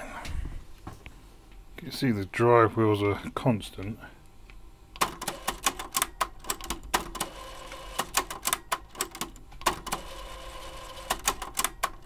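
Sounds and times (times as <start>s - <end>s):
cassette drive motor whining: 5.0s - 12.0s.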